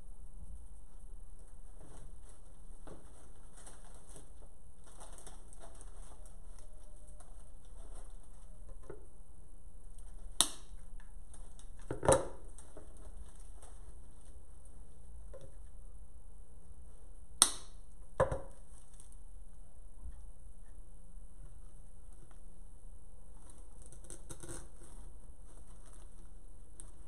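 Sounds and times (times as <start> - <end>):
steady low hum: 0.0 - 27.0
sharp snaps and knocks: 10.0 - 13.8, 17.4 - 19.1.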